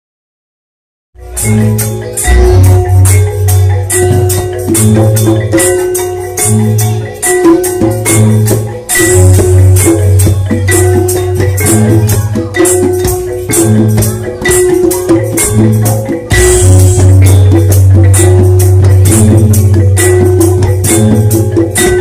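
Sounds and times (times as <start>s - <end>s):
hand drums: 1.2s - 22.0s
metallophones and gongs struck: 1.2s - 22.0s
deep sustained low tones: 2.2s - 4.3s.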